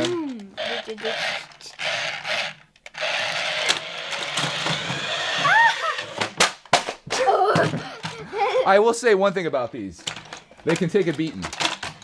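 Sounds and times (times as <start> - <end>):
toy car motors whirring: 0.0 - 6.2
sharp plastic clacks: 10.0 - 12.0.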